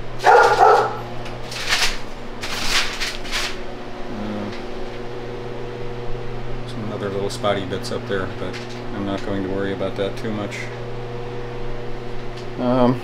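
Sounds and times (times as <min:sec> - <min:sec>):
paper and plastic sheets rustling: 0:00.2 - 0:03.7.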